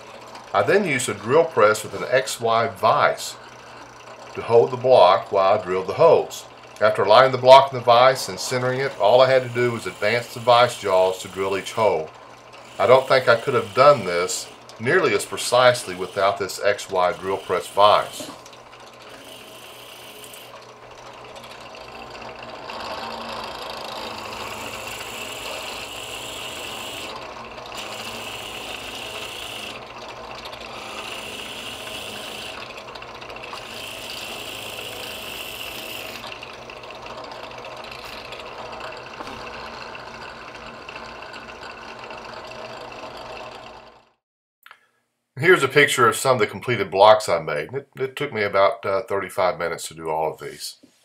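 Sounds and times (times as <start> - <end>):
drill bit boring into wood: 0.0 - 44.2
drill press motor hum: 0.0 - 44.2.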